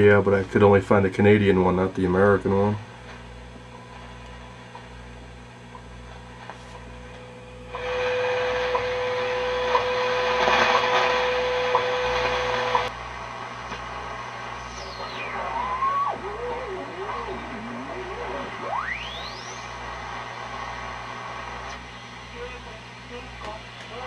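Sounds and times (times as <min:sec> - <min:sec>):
radio static: 0:07.7 - 0:24.0
steady radio tone: 0:07.8 - 0:12.9, 0:13.8 - 0:24.0
falling whistle: 0:14.6 - 0:16.6, 0:18.6 - 0:19.7.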